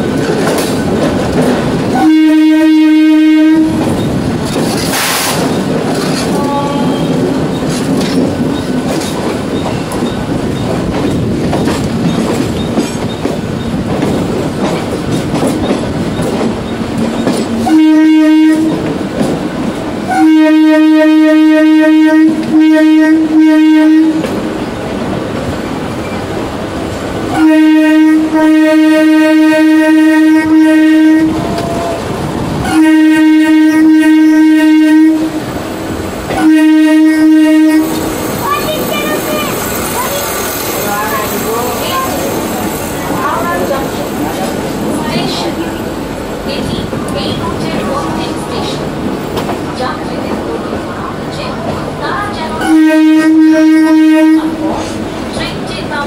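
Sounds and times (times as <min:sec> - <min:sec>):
train wheels rumbling on rails: 0:00.0 - 0:56.0
train horn: 0:01.9 - 0:03.9, 0:06.2 - 0:07.2, 0:17.6 - 0:18.8, 0:20.1 - 0:24.3, 0:27.3 - 0:32.0, 0:32.6 - 0:35.5, 0:36.3 - 0:39.7, 0:52.6 - 0:54.8.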